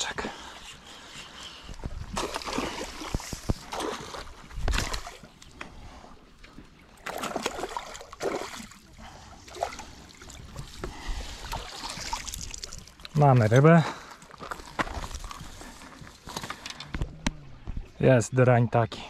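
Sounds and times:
fish splashing in water: 7.0 - 8.9.

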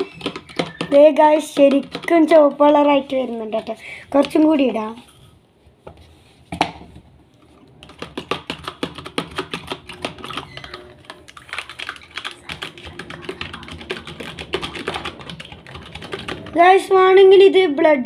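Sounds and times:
clicks and taps against plastic: 0.0 - 2.3, 4.2 - 4.5.

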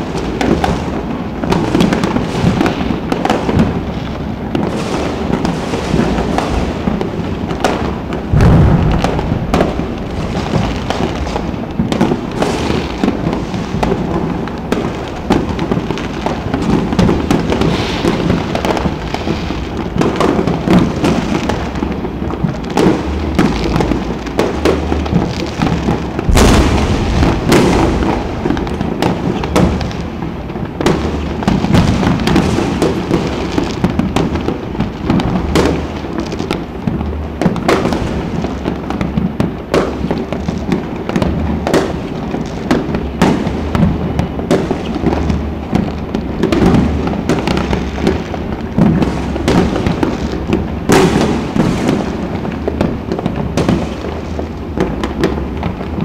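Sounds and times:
big firework bang: 0.0 - 21.9, 22.8 - 36.0
fireworks crackling and popping: 0.0 - 56.0.

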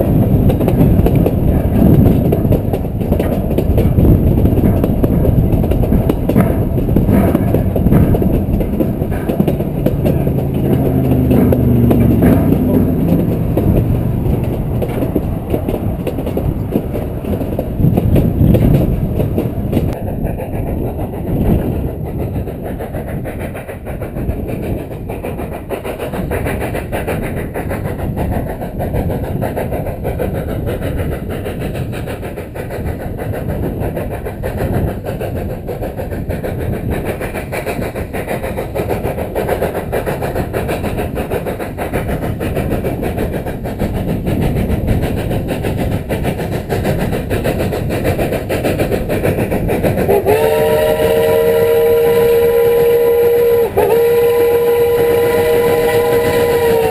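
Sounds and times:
model train wheels rattling: 0.0 - 56.9
multi-tone train whistle: 50.1 - 56.9.

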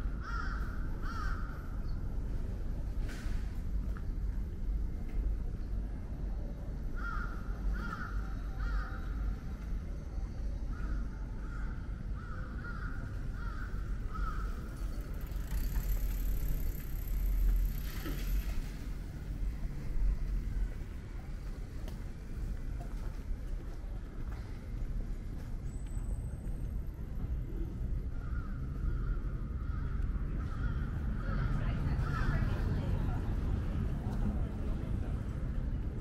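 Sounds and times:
low street rumble: 0.0 - 36.0
crow cawing: 0.2 - 1.5, 7.0 - 9.0, 12.2 - 14.6.

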